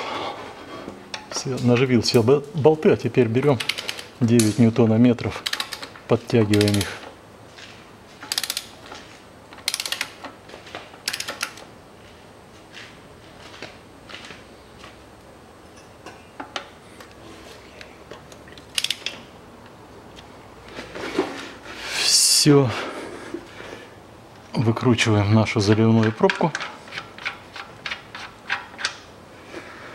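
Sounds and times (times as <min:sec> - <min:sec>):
ratchet wrench clicking: 0:03.6 - 0:04.1, 0:05.4 - 0:07.0, 0:08.2 - 0:08.8, 0:09.6 - 0:10.2, 0:11.0 - 0:11.6, 0:18.6 - 0:19.2.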